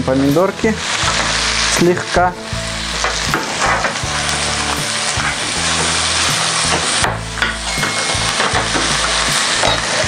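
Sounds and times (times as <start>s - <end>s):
tomatoes sizzling in a frying pan: 0.0s - 10.0s.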